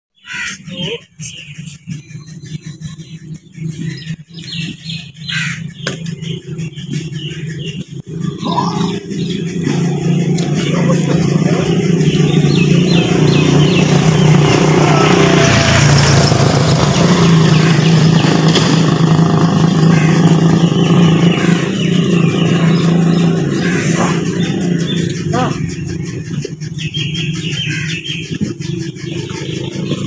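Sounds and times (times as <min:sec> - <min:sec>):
motorcycle rickshaw engine passing: 0:01.2 - 0:30.0.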